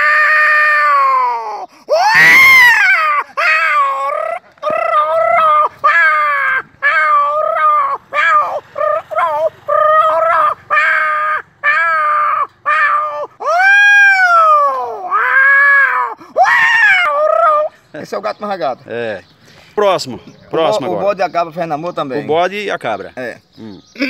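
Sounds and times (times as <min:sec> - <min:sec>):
man imitating cat yowls: 0:00.0 - 0:17.8.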